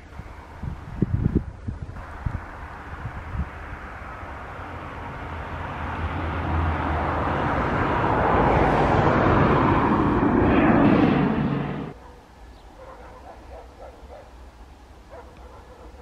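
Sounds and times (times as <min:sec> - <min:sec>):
turboprop plane passing overhead: 0:00.0 - 0:12.0.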